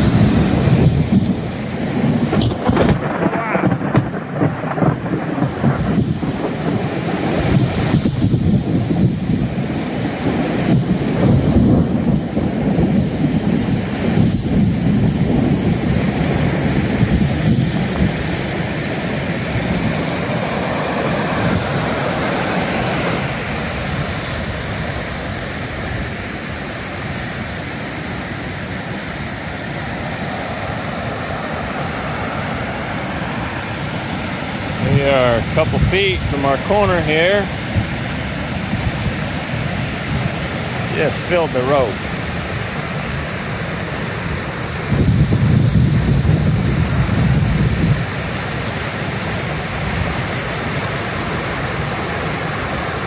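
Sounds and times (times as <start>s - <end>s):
low thunder rumble: 0.0s - 18.5s, 34.8s - 36.7s, 44.8s - 48.1s
floodwater rushing: 0.0s - 53.0s
rain: 0.0s - 53.0s.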